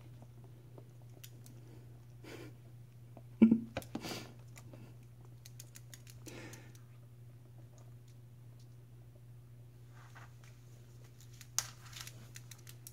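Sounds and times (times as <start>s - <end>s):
bird beak and claws tapping floor: 11.0s - 12.9s.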